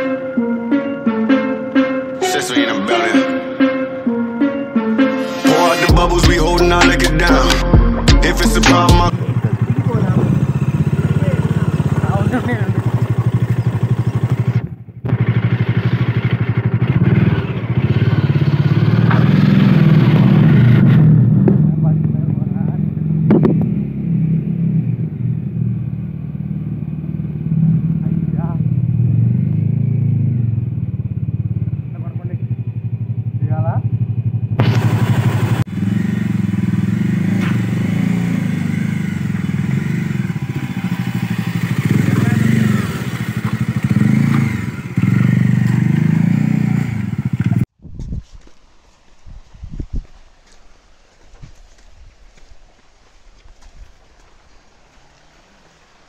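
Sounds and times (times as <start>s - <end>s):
motorcycle engine thumping: 9.0s - 24.0s, 28.8s - 48.1s.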